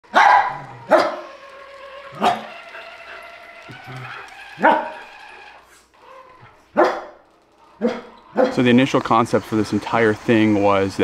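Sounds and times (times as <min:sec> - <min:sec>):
dog barking: 0:00.1 - 0:01.2, 0:04.1 - 0:05.1, 0:06.7 - 0:07.2, 0:07.8 - 0:08.6.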